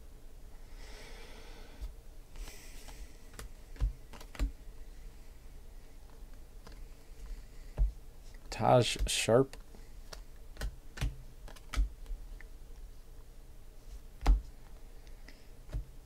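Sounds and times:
sharp taps and clicks: 8.9 - 11.9.

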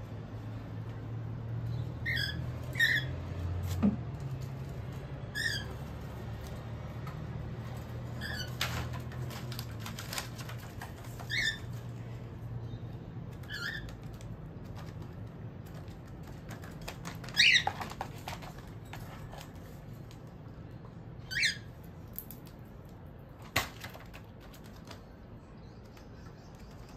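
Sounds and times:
cockatiels chirping: 2.0 - 3.1, 5.3 - 5.8, 11.2 - 11.8, 13.3 - 14.1, 17.2 - 18.0, 21.2 - 21.7
clicks and rustles in cage: 3.3 - 12.2, 13.2 - 20.4, 23.3 - 25.4.

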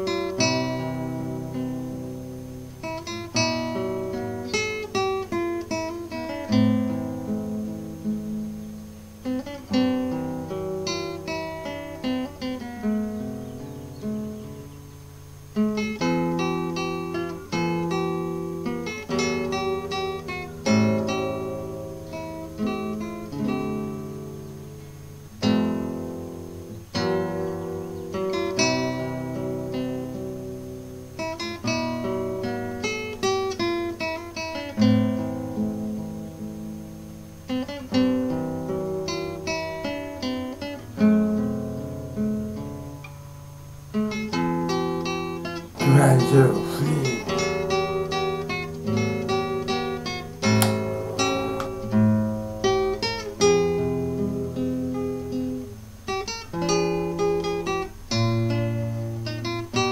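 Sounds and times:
acoustic guitar chords: 44.2 - 55.8.

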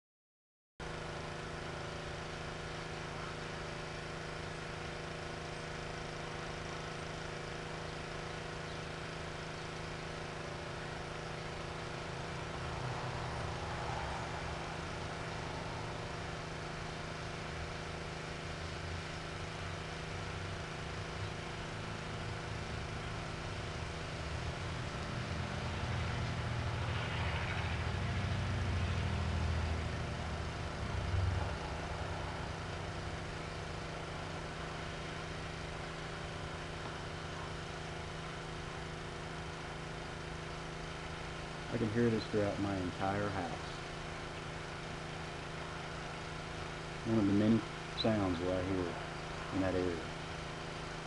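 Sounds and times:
pressure washer droning: 0.8 - 51.0.

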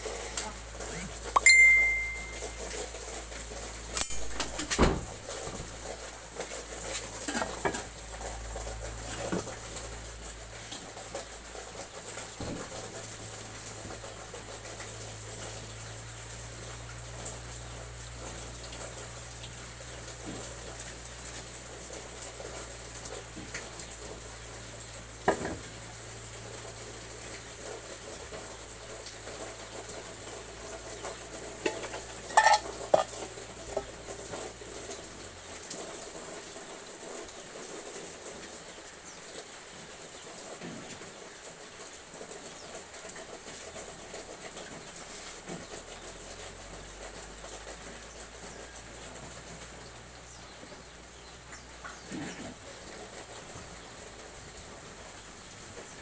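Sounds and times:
kitchen utensils clinking: 1.4 - 2.6, 4.0 - 4.8, 31.6 - 33.9
food sizzling in a wok: 6.9 - 35.6.

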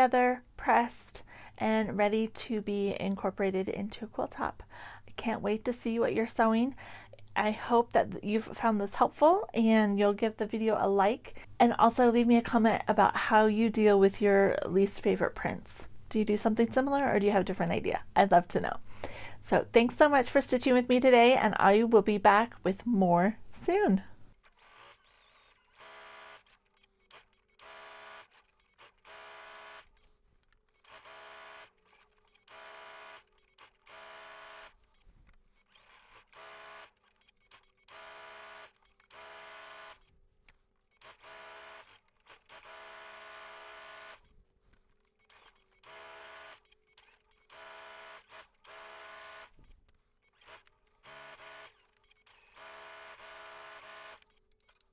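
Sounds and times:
sewing machine stitching: 24.4 - 30.1, 30.7 - 35.0, 35.6 - 40.1, 40.9 - 44.3, 45.1 - 54.9.

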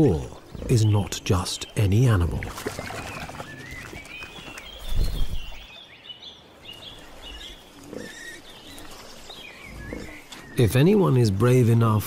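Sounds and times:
small birds chirping: 0.0 - 12.0
wild boar grunting: 9.6 - 10.6.

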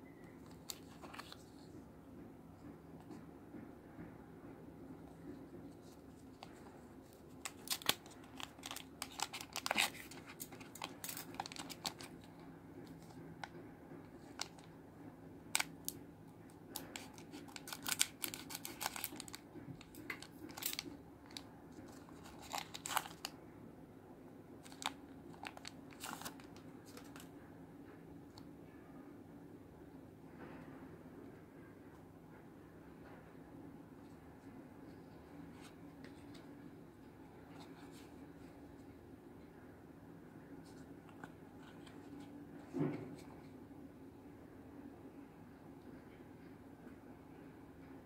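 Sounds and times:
foil pack crinkling: 7.4 - 12.2, 16.8 - 21.4, 22.1 - 23.3, 24.6 - 27.2.

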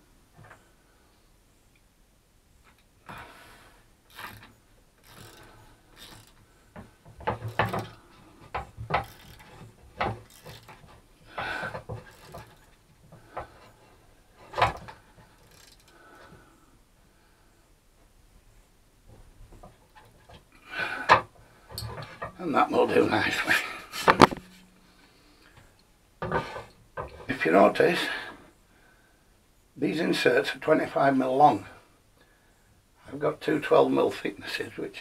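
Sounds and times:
clicks and short scrapes: 23.7 - 25.7.

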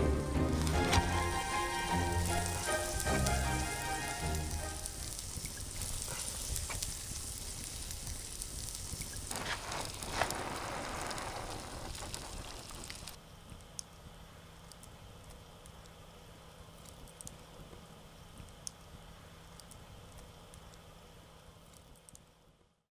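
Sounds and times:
music: 0.0 - 5.1
food sizzling and crackling: 0.0 - 13.2.

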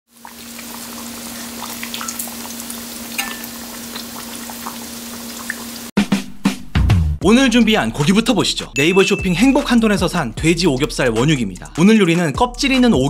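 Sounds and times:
meat sizzling in hot oil: 0.1 - 5.9
oil popping and crackling: 0.1 - 5.9.

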